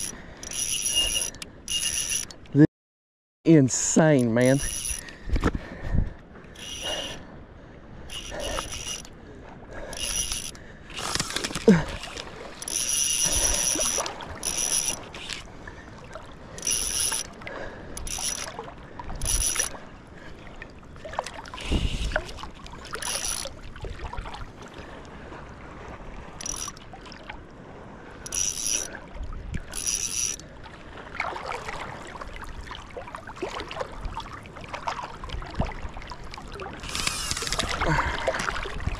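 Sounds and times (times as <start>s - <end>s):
fishing reel drag whining: 0.0s - 2.4s, 4.4s - 5.1s, 6.5s - 7.2s, 8.1s - 9.2s, 9.8s - 15.5s, 16.5s - 17.4s, 18.0s - 19.8s, 23.0s - 23.6s, 26.4s - 26.8s, 28.2s - 29.0s, 29.7s - 30.4s, 36.8s - 37.9s.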